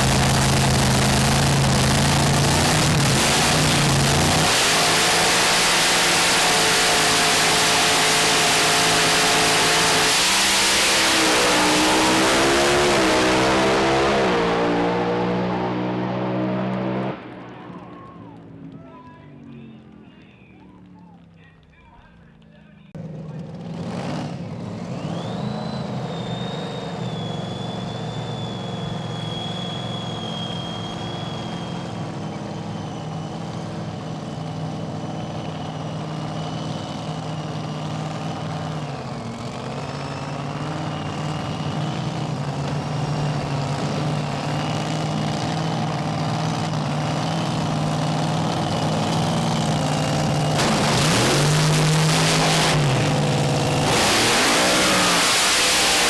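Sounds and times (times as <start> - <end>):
dragster engine idling: 0.0 - 4.3.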